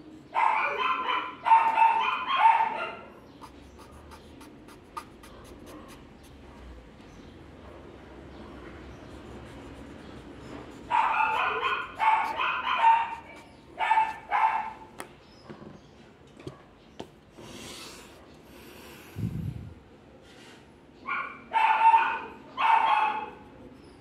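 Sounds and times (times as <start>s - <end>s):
dog barking: 0.3s - 6.8s, 10.9s - 15.0s, 21.0s - 23.6s.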